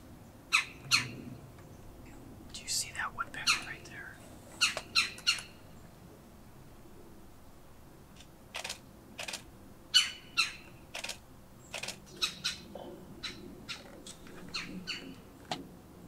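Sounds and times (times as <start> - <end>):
woodpecker calling: 0.5 - 5.9, 9.9 - 15.3.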